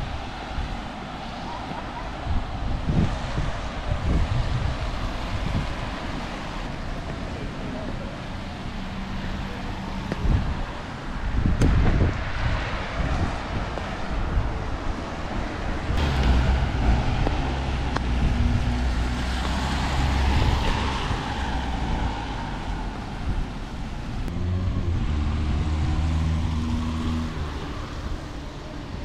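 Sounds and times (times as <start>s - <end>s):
wind-like noise: 0.0s - 8.0s, 9.4s - 29.0s
engine droning: 16.0s - 23.1s, 24.0s - 28.7s.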